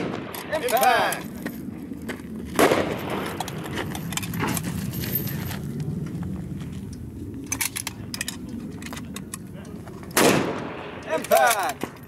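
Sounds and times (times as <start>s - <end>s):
steady low rumble: 0.0s - 12.0s
rifle gear clinking and rattling: 0.3s - 2.1s, 3.0s - 5.7s, 6.9s - 10.2s, 11.0s - 12.0s.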